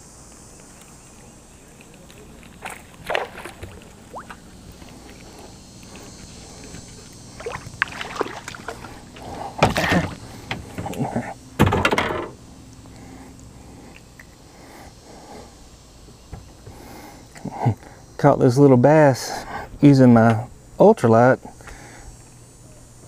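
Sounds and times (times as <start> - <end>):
fish splashing: 2.6 - 4.8, 6.9 - 10.3.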